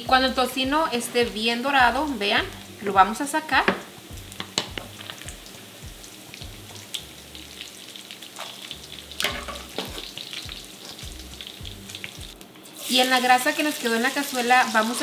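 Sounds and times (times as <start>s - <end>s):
bacon sizzling in fat: 0.0s - 15.0s
wire skimmer knocking against pot: 9.2s - 10.0s.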